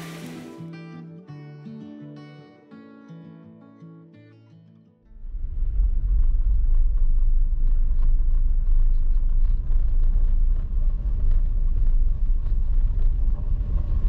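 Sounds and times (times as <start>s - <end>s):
car road rumble: 5.2s - 14.0s.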